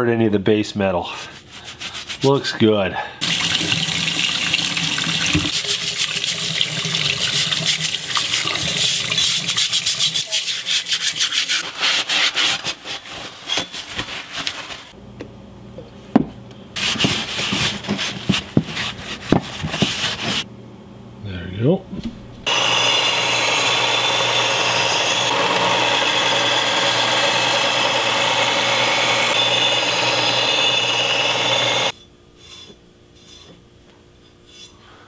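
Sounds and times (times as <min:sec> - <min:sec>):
paper towel rubbing: 0:08.8 - 0:15.0.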